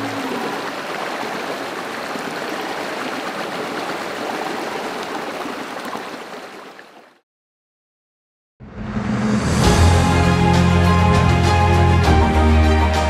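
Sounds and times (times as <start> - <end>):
rushing water: 0.0 - 7.2.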